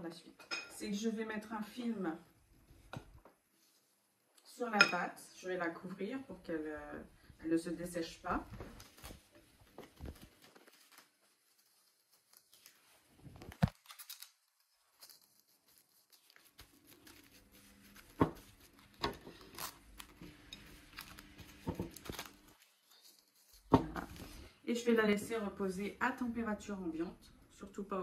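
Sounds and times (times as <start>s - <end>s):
cling film crinkling: 8.5s - 24.5s.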